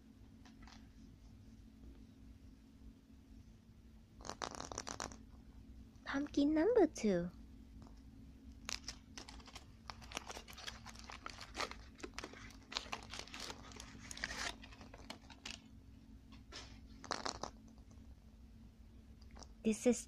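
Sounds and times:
foil wrapper crinkling and tearing: 0:08.6 - 0:15.7.

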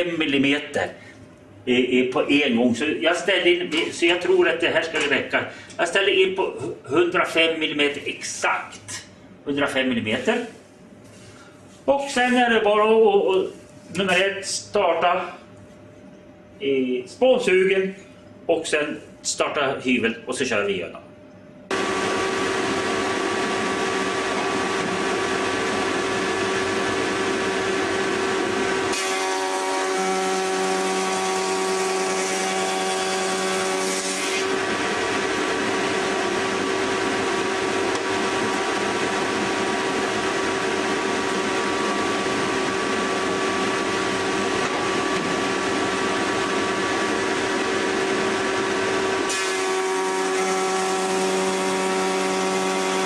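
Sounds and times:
chip extractor running: 0:21.7 - 0:53.0
planer running: 0:21.7 - 0:53.0.

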